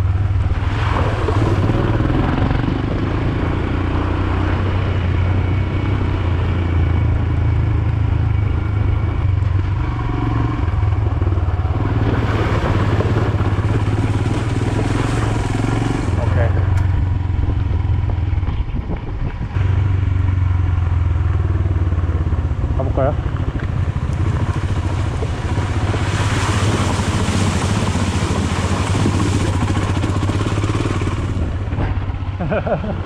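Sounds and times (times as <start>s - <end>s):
motorcycle engine running: 1.2s - 33.0s
tyres on wet gravel: 11.8s - 17.0s, 23.2s - 33.0s.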